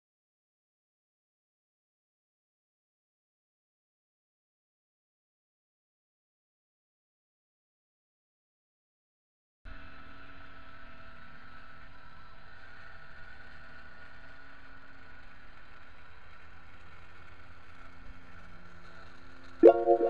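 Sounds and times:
pulsing synthesizer chords: 19.6s - 20.0s.

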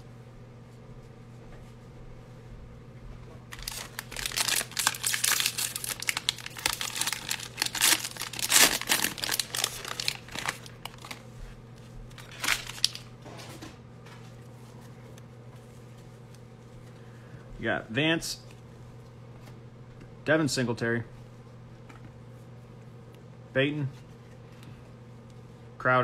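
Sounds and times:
plastic wrapper tearing and crinkling: 3.5s - 11.3s, 12.1s - 13.1s.

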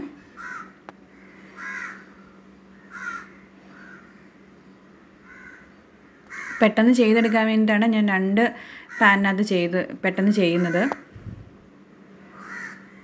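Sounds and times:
faint steady hum: 0.0s - 13.0s
crow cawing: 0.4s - 4.4s, 5.2s - 7.4s, 12.3s - 13.0s.

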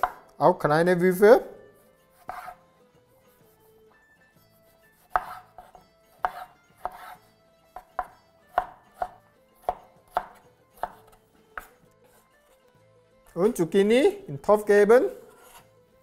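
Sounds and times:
knife chopping on wooden board: 0.0s - 0.4s, 2.1s - 2.6s, 5.0s - 12.2s, 15.2s - 15.7s.

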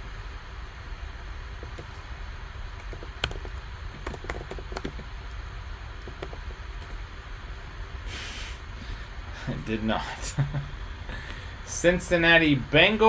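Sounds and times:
steady low hum: 0.0s - 13.0s
short burst of hiss: 8.0s - 8.8s.

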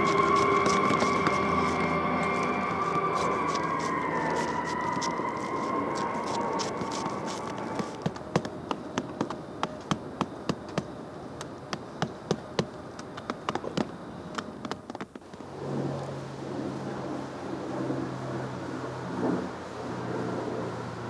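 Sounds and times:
steady high whine: 0.0s - 21.0s
hammer tapping on bark roofing: 7.8s - 15.2s.

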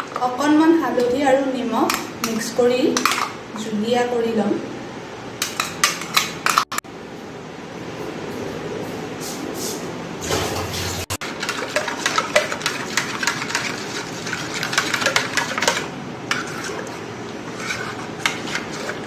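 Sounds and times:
paste stirred in steel bowl: 11.2s - 19.0s.

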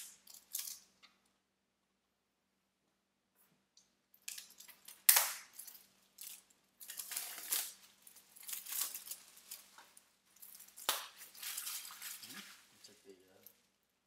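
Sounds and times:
plastic shrink wrap crinkling: 0.0s - 1.0s, 4.2s - 13.7s.

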